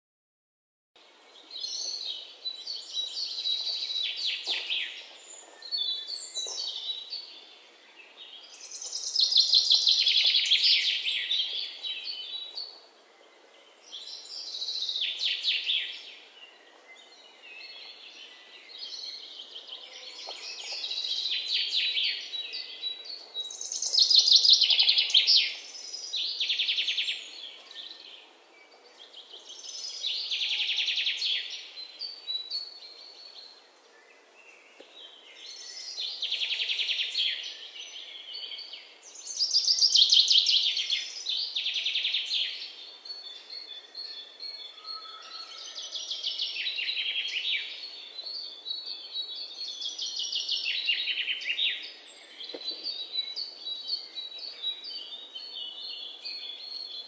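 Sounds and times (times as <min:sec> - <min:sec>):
songbird trilling and chirping: 0:01.4 - 0:12.8, 0:13.5 - 0:57.0.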